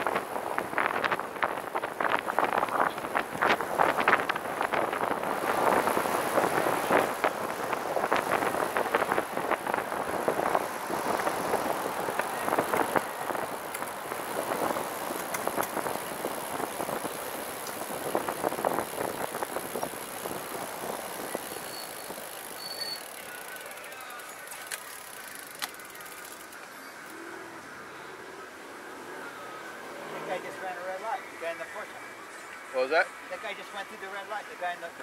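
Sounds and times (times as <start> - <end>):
wind on microphone: 0.0 - 21.6
cars passing close by: 0.0 - 35.0
tyres rolling on pavement: 0.0 - 35.0.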